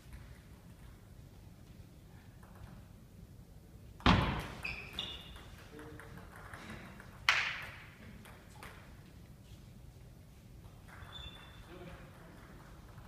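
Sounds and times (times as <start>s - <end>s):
table tennis hits with echo: 4.0s - 9.0s
shoes squeaking on floor: 4.4s - 5.7s, 10.8s - 11.9s.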